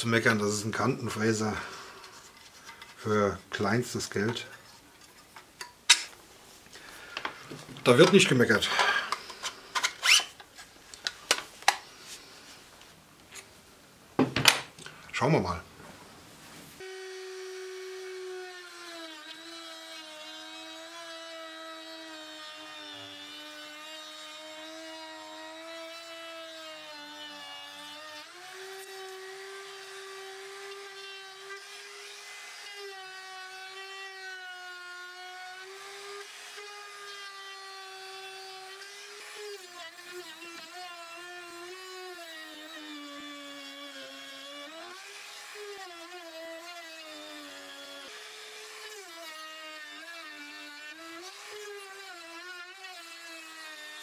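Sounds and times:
router motor whine cutting wood: 16.8s - 54.0s.

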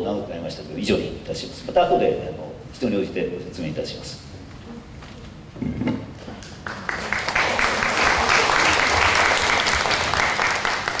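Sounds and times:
audience applauding: 6.6s - 11.0s.

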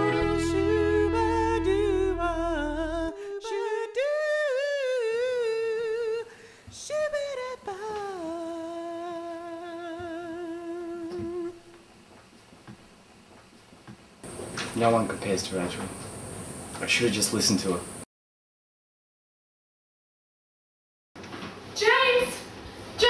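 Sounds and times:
backing music: 0.0s - 3.0s
person humming: 0.0s - 6.3s, 6.9s - 11.8s.

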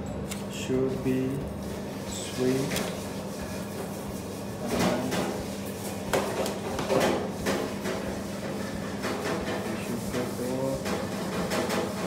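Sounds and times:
utensils and dishes clattering: 4.6s - 12.0s.

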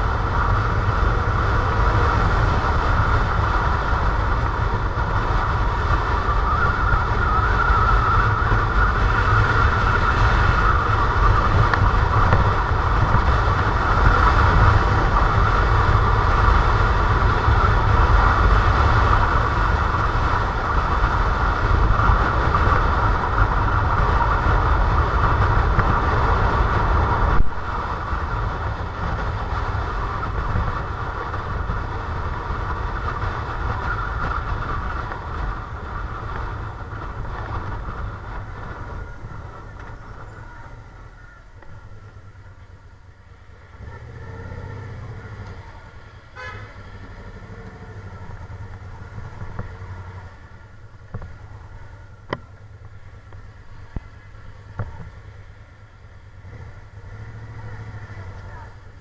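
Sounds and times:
wind noise on microphone: 0.0s - 42.4s
motorcycle engine: 0.0s - 59.0s.

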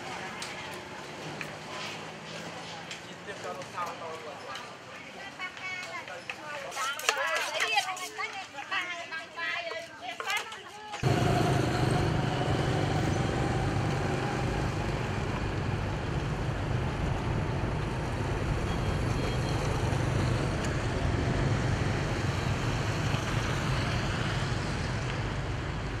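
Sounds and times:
road traffic hum and hiss: 0.0s - 5.7s, 11.0s - 26.0s.

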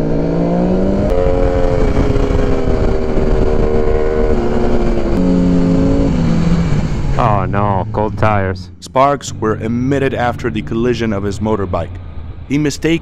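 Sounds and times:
wind rush: 0.0s - 8.8s
motorcycle engine: 0.0s - 12.5s.

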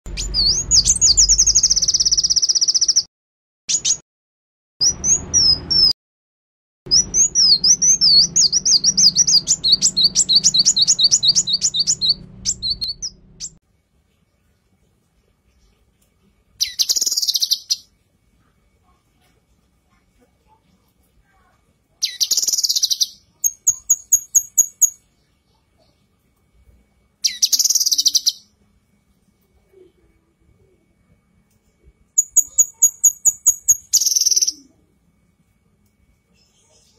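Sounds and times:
bird chirping: 0.1s - 3.1s, 3.7s - 4.0s, 4.8s - 6.0s, 6.9s - 13.6s, 16.6s - 17.9s, 22.0s - 26.0s, 27.2s - 28.5s, 32.2s - 34.8s
bird trilling: 0.1s - 3.1s, 6.9s - 13.6s, 16.6s - 17.8s, 22.0s - 25.0s, 27.2s - 28.4s, 32.2s - 34.7s
bird whistled glides and trill: 6.9s - 13.6s.

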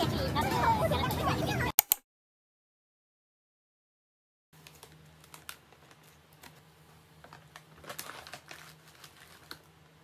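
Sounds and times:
paper bag crinkling: 4.6s - 10.0s.

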